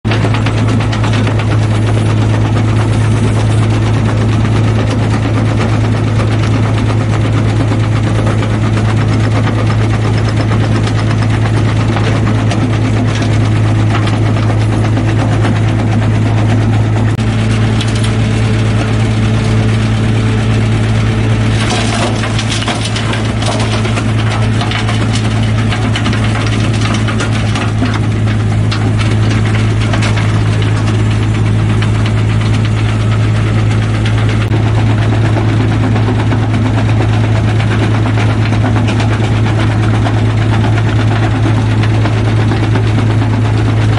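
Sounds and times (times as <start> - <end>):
rock crusher droning: 0.0 - 43.9
load tipped into hopper: 17.2 - 36.7
stones knocking and cracking: 21.4 - 43.9.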